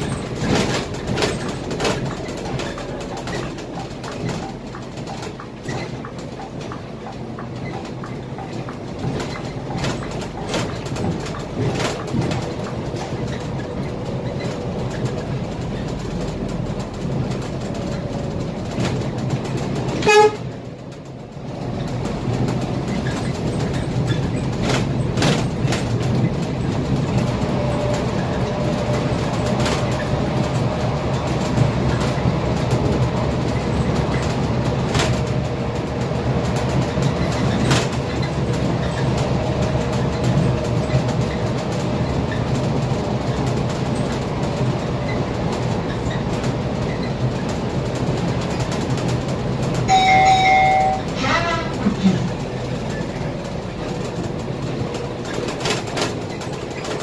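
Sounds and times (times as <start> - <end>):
bus engine drone: 0.0 - 57.0
knocks and rattles: 0.0 - 57.0
horn toot: 20.0 - 20.5, 49.9 - 51.9.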